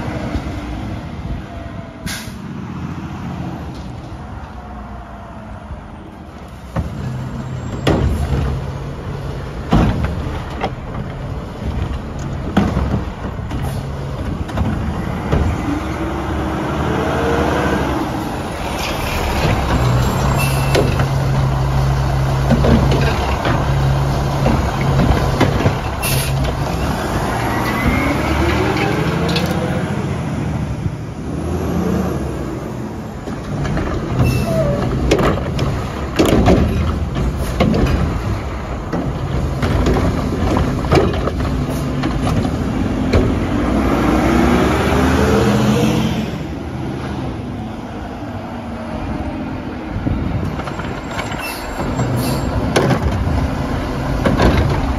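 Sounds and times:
air brake hissing: 0:02.0 - 0:02.5
hydraulic arm whining: 0:18.0 - 0:29.8.

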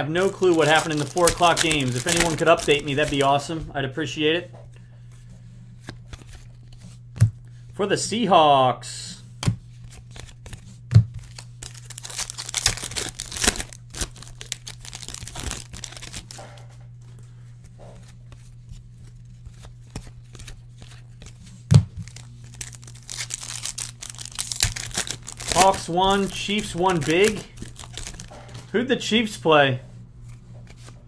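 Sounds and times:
steady low hum: 0:00.0 - 0:31.0
card pack wrappers tearing: 0:00.2 - 0:03.5, 0:09.9 - 0:16.6, 0:22.0 - 0:28.6.

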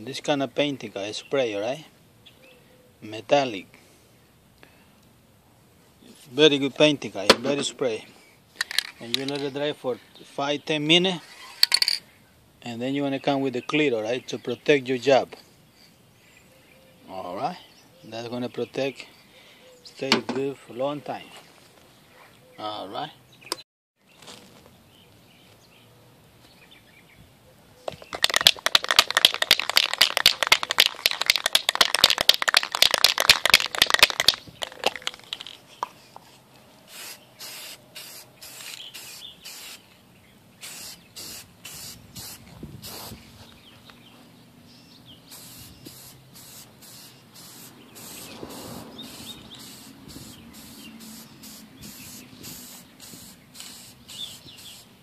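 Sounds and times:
spray can ball rattling: 0:08.6 - 0:09.5, 0:11.6 - 0:12.0, 0:28.0 - 0:35.9, 0:36.9 - 0:39.8, 0:40.6 - 0:43.2, 0:45.3 - 0:54.8
spray paint hissing: 0:28.2 - 0:35.6, 0:36.9 - 0:39.8, 0:40.6 - 0:43.2, 0:45.3 - 0:55.0.

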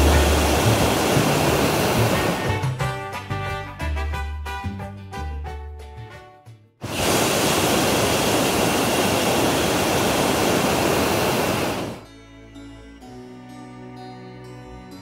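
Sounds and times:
propane burner roaring: 0:00.0 - 0:02.6, 0:06.8 - 0:12.0.

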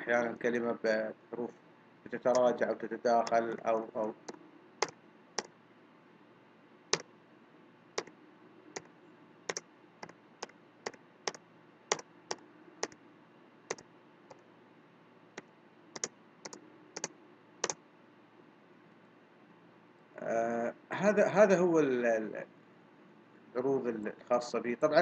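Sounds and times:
faint steady hum: 0:00.0 - 0:25.0
computer clicks: 0:02.3 - 0:02.6, 0:03.2 - 0:05.5, 0:08.0 - 0:08.2, 0:09.5 - 0:13.0, 0:15.4 - 0:17.8.

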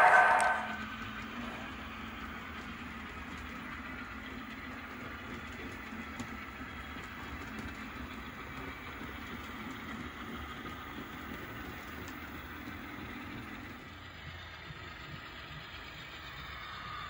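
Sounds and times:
model train rumbling: 0:00.0 - 0:17.0.

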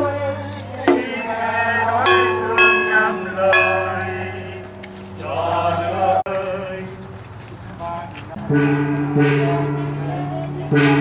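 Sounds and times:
voices chanting: 0:00.0 - 0:11.0
gong and drum strokes: 0:00.9 - 0:06.1.

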